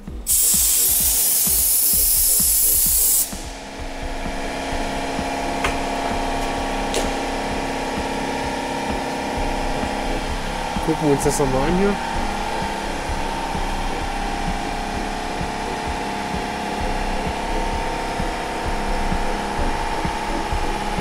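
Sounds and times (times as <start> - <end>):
steady hum: 0.0 - 21.0
loud spraying hiss: 0.3 - 3.4.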